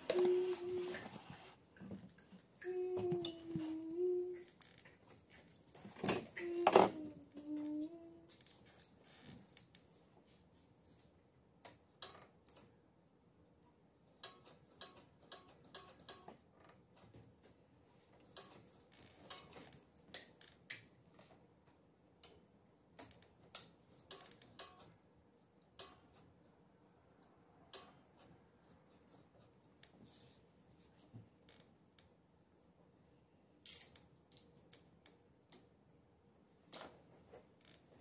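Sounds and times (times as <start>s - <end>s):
small mechanical clicks: 14.2s - 16.3s, 23.0s - 25.0s.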